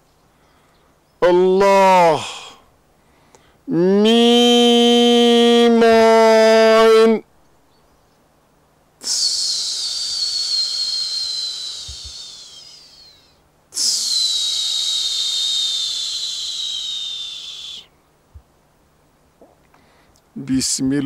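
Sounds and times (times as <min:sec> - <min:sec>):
breathy whistling hisses: 0:09.0 - 0:18.0.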